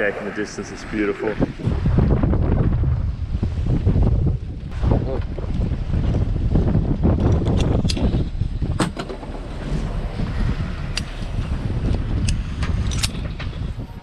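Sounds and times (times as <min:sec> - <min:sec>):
wind buffeting microphone: 0:00.0 - 0:14.0
metal snap hook clicking: 0:12.2 - 0:13.2.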